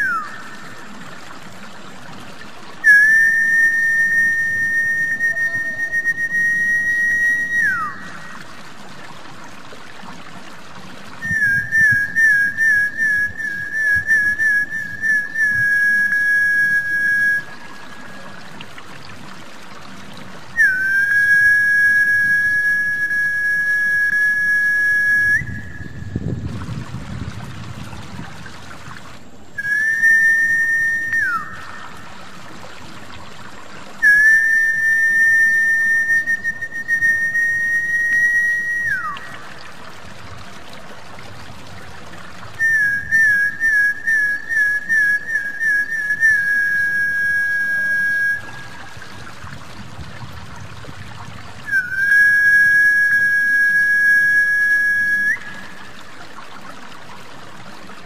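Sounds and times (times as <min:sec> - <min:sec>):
high whistled notes: 0:00.0 - 0:00.4, 0:02.8 - 0:08.1, 0:20.6 - 0:26.2, 0:29.6 - 0:32.0, 0:34.0 - 0:39.4, 0:51.7 - 0:55.8
trickling water: 0:00.0 - 0:58.0.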